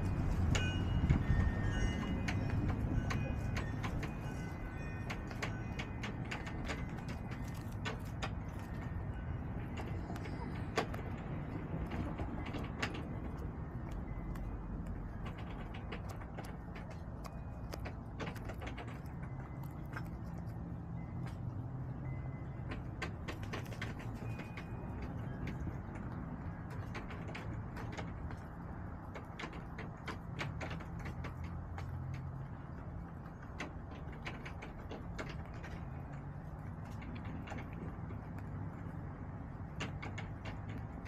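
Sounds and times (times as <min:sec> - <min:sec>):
steady low hum: 0:00.0 - 0:41.0
chickens pecking taps: 0:02.0 - 0:21.8, 0:22.5 - 0:41.0.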